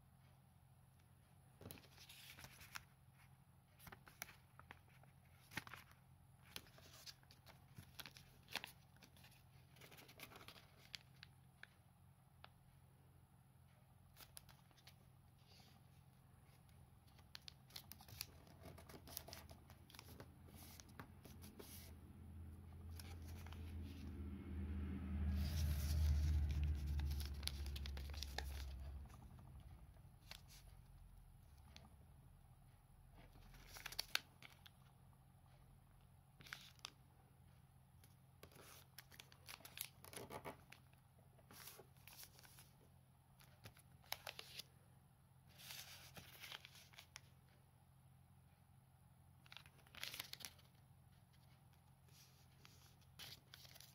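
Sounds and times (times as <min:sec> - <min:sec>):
paper rustling and crinkling: 0:01.6 - 0:11.7, 0:16.5 - 0:22.0, 0:25.2 - 0:30.7, 0:33.2 - 0:34.8, 0:38.4 - 0:42.8, 0:43.4 - 0:44.7, 0:45.5 - 0:47.5, 0:49.4 - 0:53.9
low rumble: 0:21.9 - 0:30.4.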